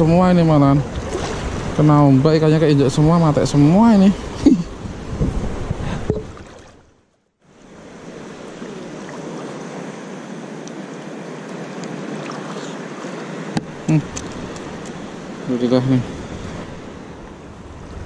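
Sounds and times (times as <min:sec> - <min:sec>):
shallow sea water lapping: 0:00.0 - 0:18.0
wind: 0:00.0 - 0:18.0.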